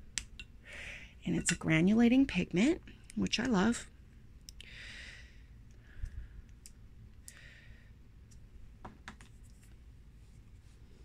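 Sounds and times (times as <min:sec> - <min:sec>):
soft rustles: 0:09.3 - 0:11.0.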